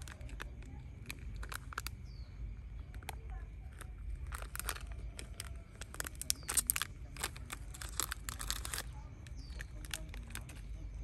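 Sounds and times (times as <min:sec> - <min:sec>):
plastic wrapper tearing and crinkling: 0:00.0 - 0:02.0, 0:02.9 - 0:10.8.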